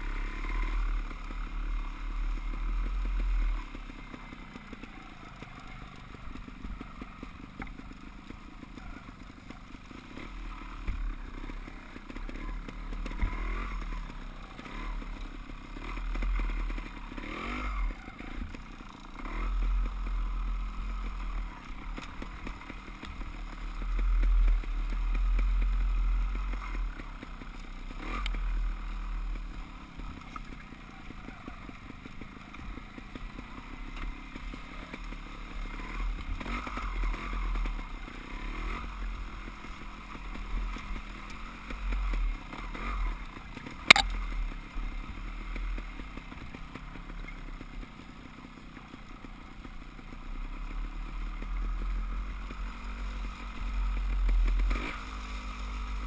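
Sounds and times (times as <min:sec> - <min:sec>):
dirt bike engine revving: 0:00.0 - 0:56.0.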